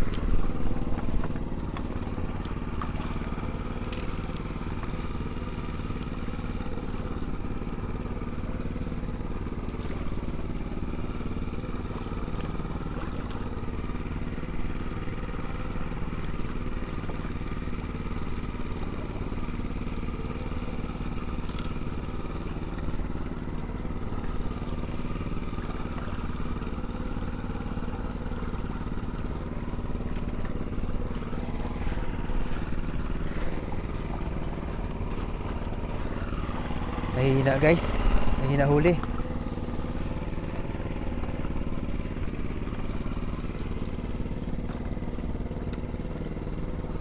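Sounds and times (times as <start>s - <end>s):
small boat engine droning: 0.0s - 47.0s.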